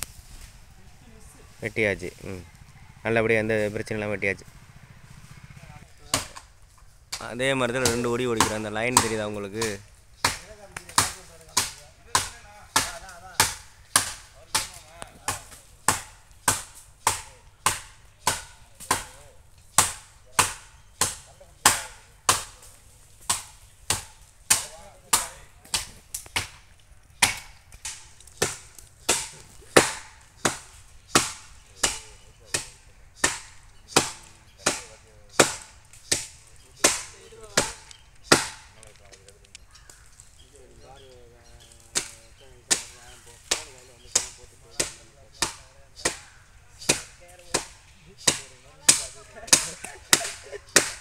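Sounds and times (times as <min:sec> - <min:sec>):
blade chopping on wood: 0:07.1 - 0:22.6, 0:27.2 - 0:38.8, 0:41.9 - 0:51.0.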